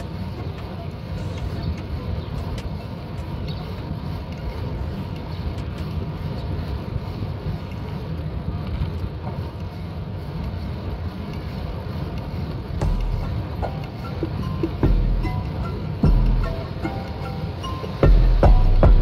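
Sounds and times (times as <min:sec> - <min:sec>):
tyres rumbling on road: 0:00.0 - 0:19.0.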